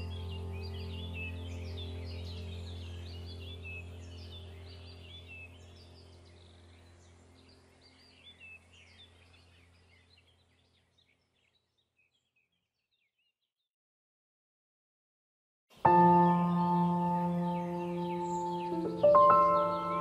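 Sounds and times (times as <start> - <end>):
low steady hum: 0.0 - 10.9
birds chirping: 0.0 - 13.5, 15.7 - 20.0.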